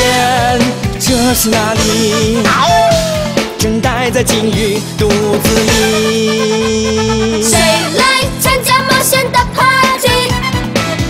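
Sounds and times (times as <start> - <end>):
steady drum beat: 0.0 - 8.6
upbeat pop song: 0.0 - 11.0.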